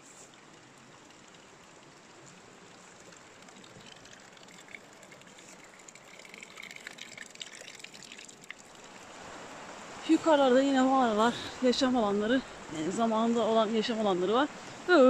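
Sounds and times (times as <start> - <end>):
water trickling into basin: 0.0 - 9.3
light crackles: 0.0 - 10.2.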